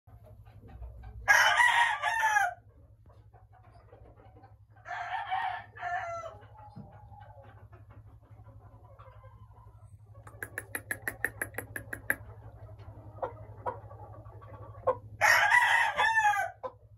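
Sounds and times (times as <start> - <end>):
chicken calling: 10.2 - 16.8.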